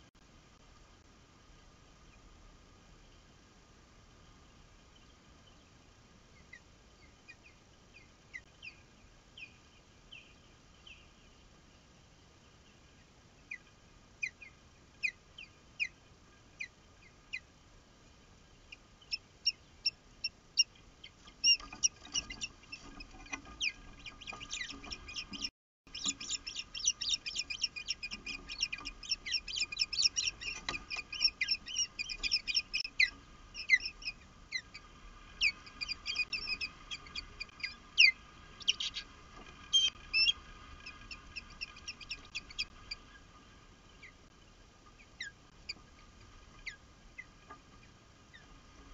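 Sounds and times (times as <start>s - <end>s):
ospreys whistled chirps: 35.4s - 39.0s, 39.7s - 42.7s.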